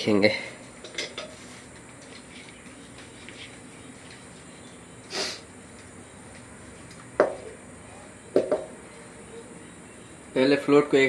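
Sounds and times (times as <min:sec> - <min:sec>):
breathy puff of air: 0:05.1 - 0:05.5.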